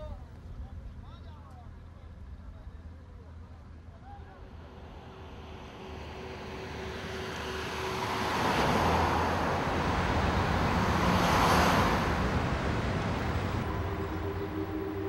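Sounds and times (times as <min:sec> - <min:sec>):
cars driving past: 0:04.2 - 0:15.0.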